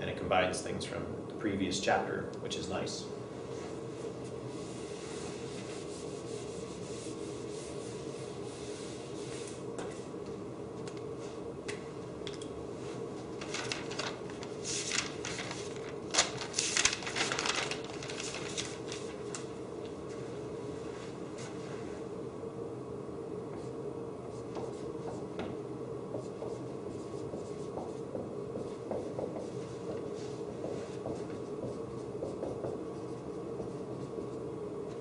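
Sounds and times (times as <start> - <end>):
room hum: 0.0 - 35.0
eraser rubbing on whiteboard: 4.5 - 9.6.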